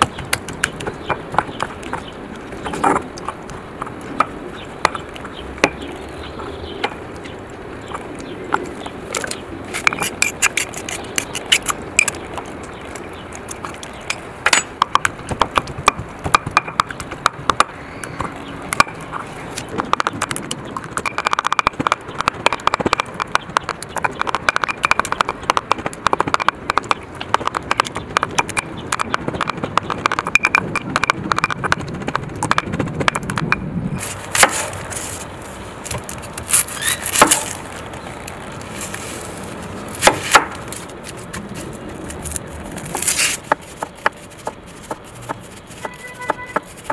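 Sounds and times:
stone pestle pounding in mortar: 14.5 - 19.0, 19.8 - 33.6.

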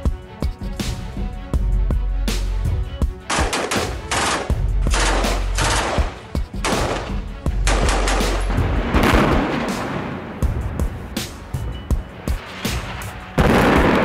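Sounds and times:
low background music: 0.0 - 14.0
rifle fire bursts: 3.3 - 9.8.

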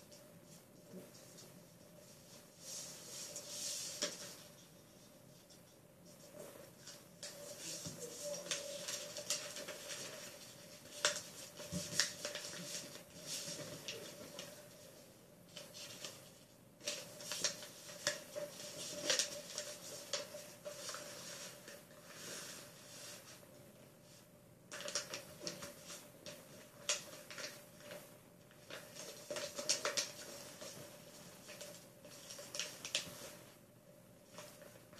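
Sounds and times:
faint steady hum: 0.0 - 34.9
paper rustling and crinkling: 2.2 - 4.6, 6.2 - 14.8, 15.5 - 23.4, 24.7 - 33.6
paper folds clicking: 8.4 - 12.9, 16.8 - 21.0, 24.7 - 27.6, 28.6 - 30.8.

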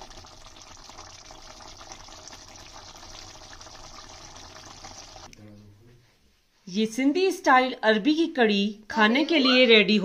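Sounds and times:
curry simmering in a pan: 0.0 - 5.3.

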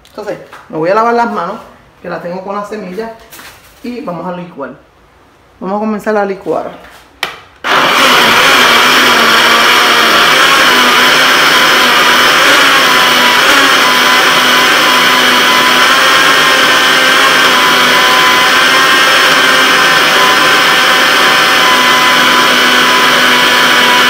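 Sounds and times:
blender running: 7.6 - 24.0.

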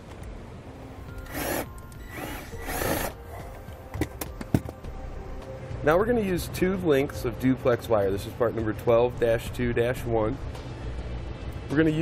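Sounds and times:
cordless drill driving screws: 1.2 - 3.2.

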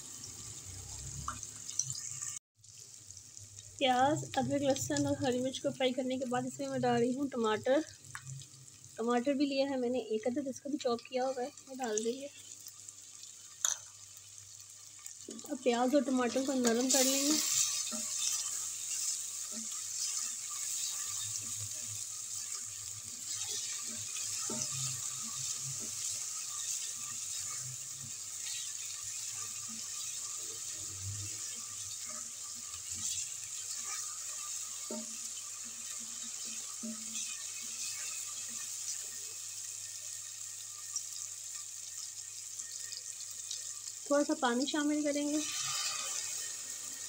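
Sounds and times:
vegetables sizzling in a pan: 0.0 - 47.0
spatula scraping and tapping: 33.1 - 38.1.

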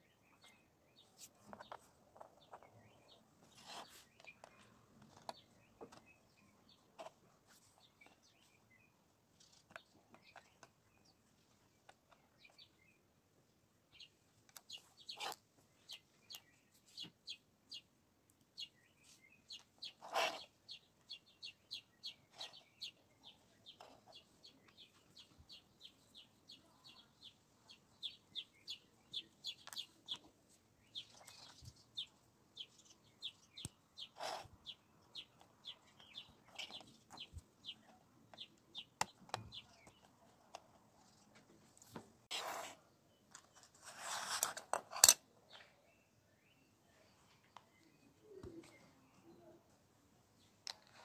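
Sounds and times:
high bird chirps: 18.6 - 40.2.

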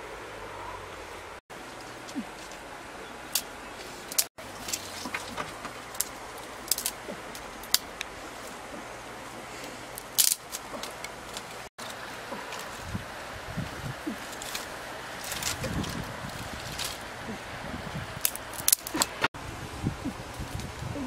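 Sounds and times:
dry sticks snapping: 3.3 - 8.7, 9.6 - 12.9, 14.1 - 17.2, 18.2 - 19.3.

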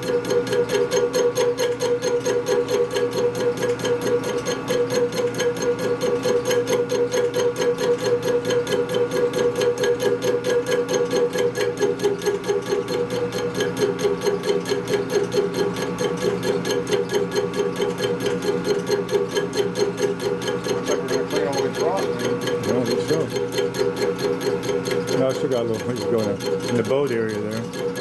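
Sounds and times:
machine tool cutting metal: 0.0 - 28.0.

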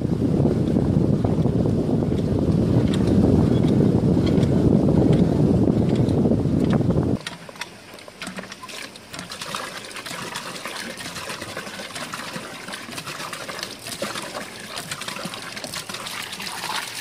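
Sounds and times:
water gushing from hand pump: 7.2 - 17.0
water splashing on ground: 8.6 - 17.0.

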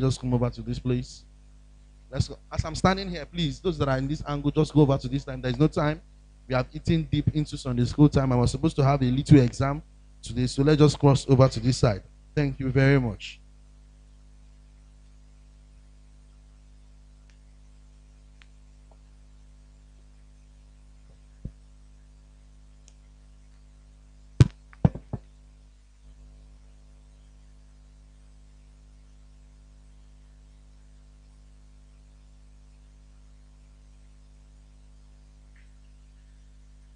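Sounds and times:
low electrical hum: 0.0 - 36.9
knocks and thumps: 24.4 - 25.3.

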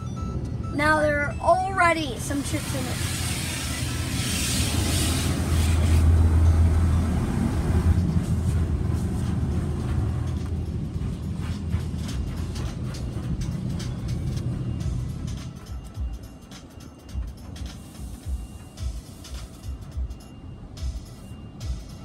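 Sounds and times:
steady low rumble: 0.0 - 22.0
water spray hissing on car: 2.3 - 6.7.

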